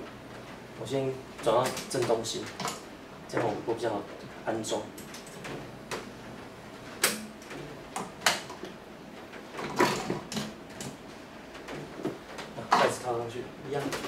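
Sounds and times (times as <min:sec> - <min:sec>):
fan parts clicking and knocking: 0:00.0 - 0:14.0.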